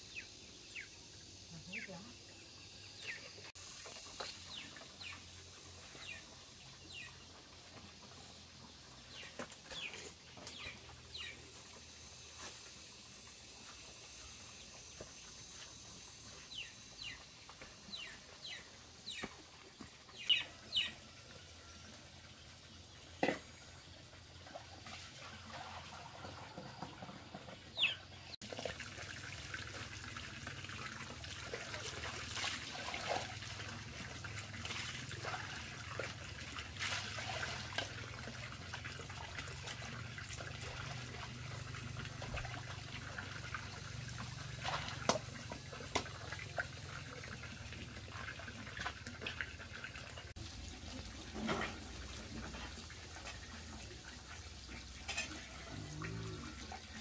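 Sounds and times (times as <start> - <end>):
water trickling: 28.4 - 57.0.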